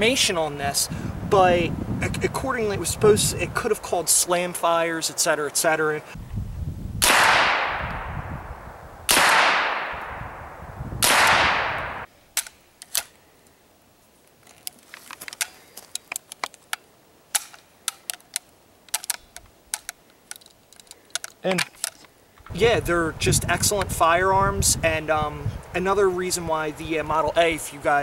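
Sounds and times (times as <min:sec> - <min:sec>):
gunshots with long echo: 0:07.0 - 0:12.1
gun handling metal clicks: 0:12.3 - 0:13.2, 0:14.3 - 0:22.5.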